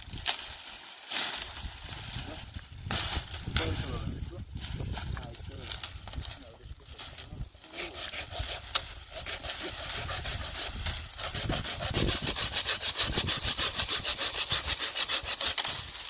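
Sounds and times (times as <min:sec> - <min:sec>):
saw cutting firewood: 0:04.8 - 0:16.0.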